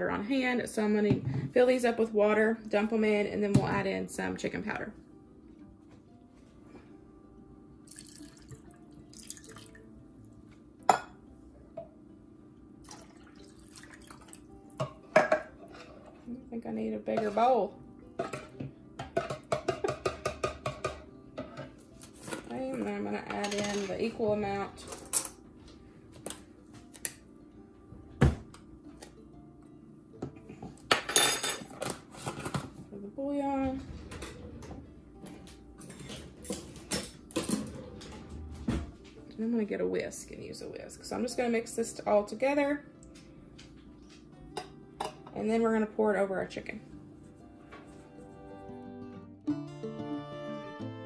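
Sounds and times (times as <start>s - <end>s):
faint background music: 0.0s - 51.0s
water splashing and trickling: 7.9s - 9.9s, 12.8s - 14.8s
can and bowl knocking: 18.2s - 21.1s.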